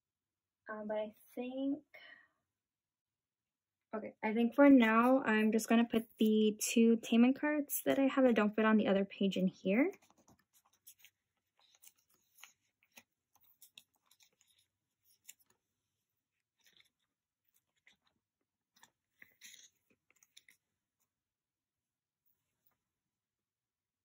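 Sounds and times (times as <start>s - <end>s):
plastic card sleeves crinkling: 9.9s - 21.0s.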